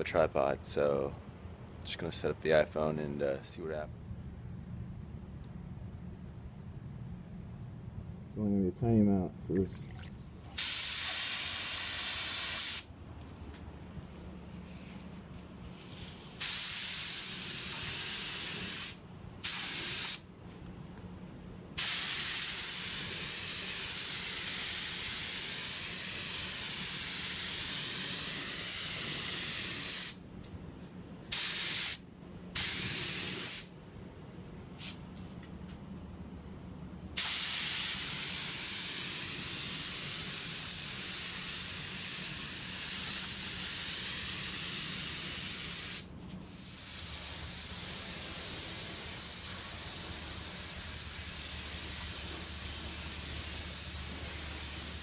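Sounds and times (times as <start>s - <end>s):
steady low hum: 0.0s - 16.4s, 17.4s - 31.4s, 32.0s - 37.2s, 46.0s - 55.0s
paint spray gun hissing: 10.6s - 12.9s, 16.4s - 20.2s, 21.8s - 30.2s, 31.3s - 32.0s, 32.6s - 33.7s, 37.2s - 55.0s.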